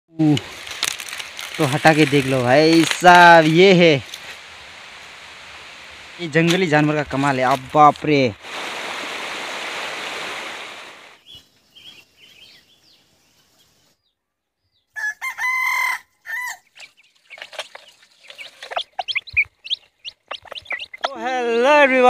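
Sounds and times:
rushing water: 0.4s - 11.2s
rooster crowing: 15.0s - 16.7s
hen clucking: 15.0s - 22.0s
chicks peeping: 16.3s - 21.3s.

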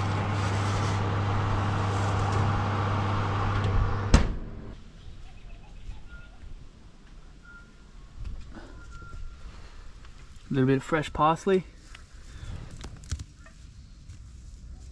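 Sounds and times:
baking tray sliding: 0.0s - 3.8s
oven fan humming: 0.0s - 4.8s
oven door thud: 3.5s - 4.4s.

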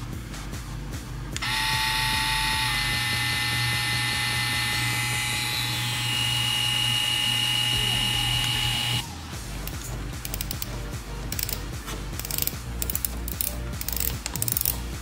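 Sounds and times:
tattoo pen motor whine: 1.4s - 9.0s.

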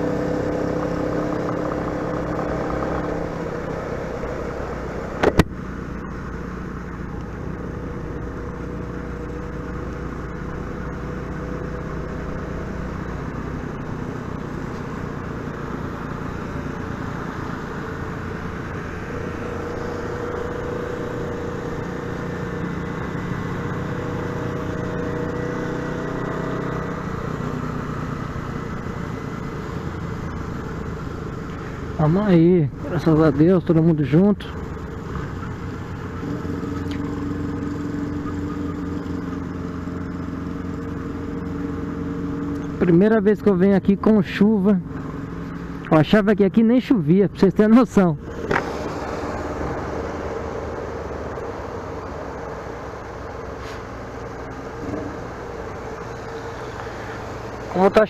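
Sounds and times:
motorcycle engine running: 0.0s - 46.5s, 47.3s - 58.0s.

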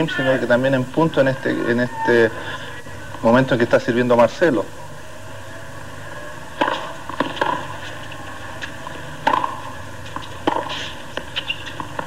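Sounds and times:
tennis ball struck by rackets: 6.6s - 12.0s.

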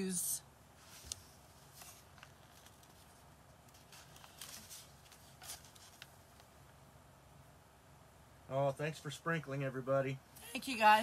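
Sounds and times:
low room hum: 0.0s - 11.0s
paper rustling and crinkling: 0.8s - 6.5s.

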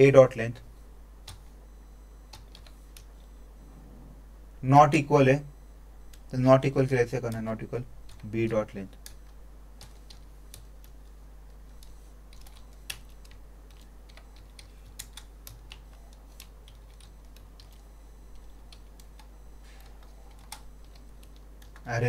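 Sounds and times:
low hum: 0.5s - 22.0s
keyboard typing: 1.2s - 1.5s, 2.3s - 3.3s, 7.2s - 21.9s.

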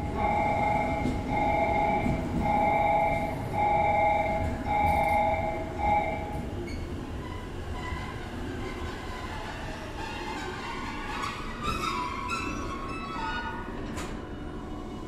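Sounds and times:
electronic warning tone beeping: 0.0s - 6.4s
train wheels and motors rumbling: 0.0s - 15.0s.

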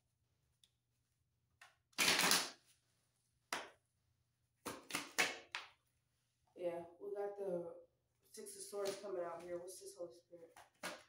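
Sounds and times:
cards being shuffled: 1.6s - 2.8s, 4.6s - 5.7s.

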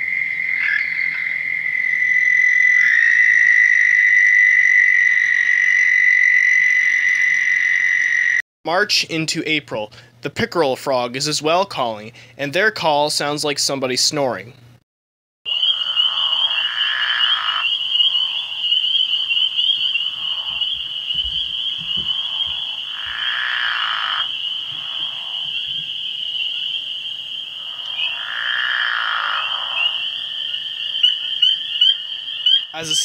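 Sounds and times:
frogs snoring calls: 0.0s - 8.4s, 15.5s - 33.0s.

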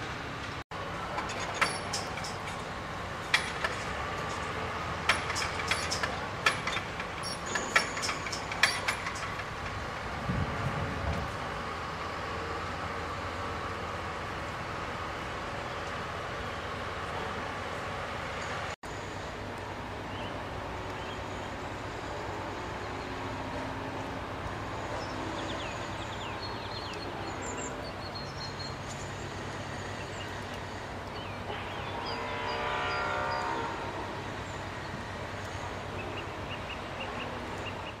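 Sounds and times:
outdoor rumble and hiss: 0.0s - 38.0s.

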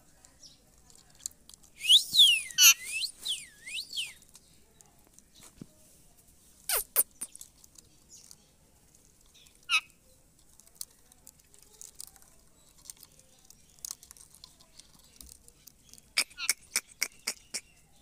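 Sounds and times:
parakeet short sharp calls: 6.7s - 7.2s.

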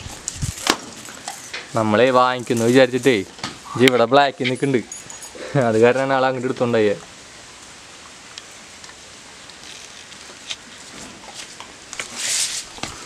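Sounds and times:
rustling: 0.0s - 6.1s, 8.8s - 13.0s.

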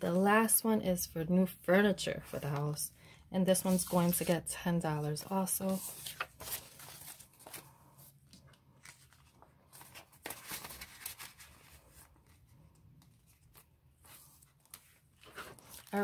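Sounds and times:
paper and plastic crinkling: 5.1s - 12.4s.

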